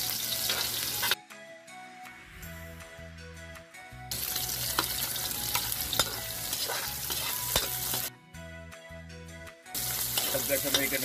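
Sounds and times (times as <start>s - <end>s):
onions sizzling in hot oil: 0.0s - 1.2s, 4.1s - 8.1s, 9.8s - 11.0s
spatula scraping a wok: 0.0s - 1.2s, 4.2s - 8.1s, 9.8s - 11.0s
spatula clinking against pan: 4.7s - 8.1s, 10.1s - 11.0s.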